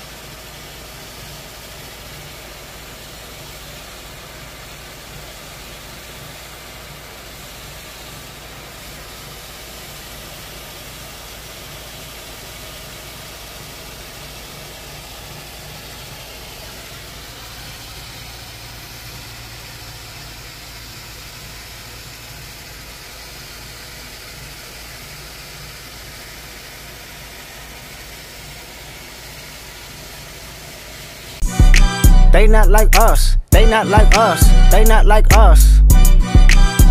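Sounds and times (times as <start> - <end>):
engine running with hiss and hum: 0.0 - 36.9.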